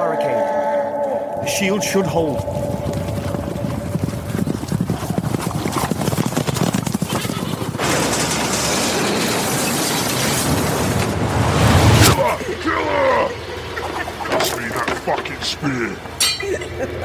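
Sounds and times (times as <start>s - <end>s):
galloping hooves pounding: 1.4s - 8.3s, 13.4s - 16.2s
loud rushing noise: 7.8s - 12.5s.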